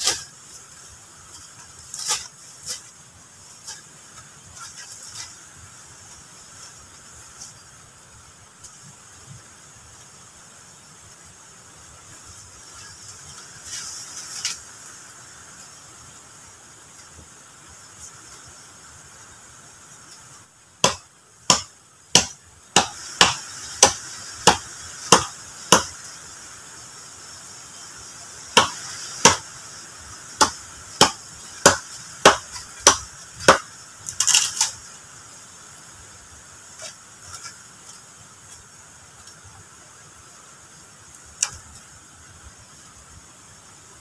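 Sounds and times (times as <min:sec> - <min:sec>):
tool striking wood: 0:20.8 - 0:26.0, 0:28.6 - 0:29.4, 0:30.4 - 0:33.7.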